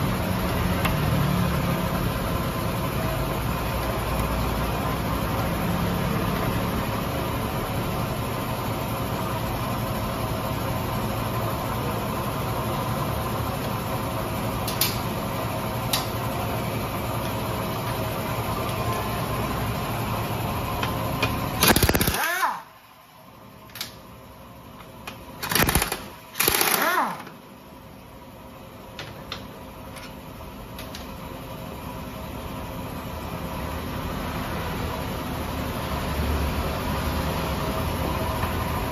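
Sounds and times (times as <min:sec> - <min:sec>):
steady mechanical hum: 0:00.0 - 0:38.9
sharp plastic clicks: 0:21.2 - 0:22.5, 0:25.1 - 0:26.9.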